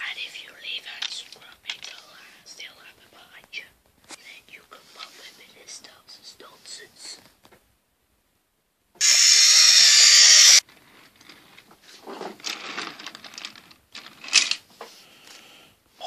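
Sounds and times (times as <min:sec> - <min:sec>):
steam locomotive hissing steam: 0:09.0 - 0:10.6.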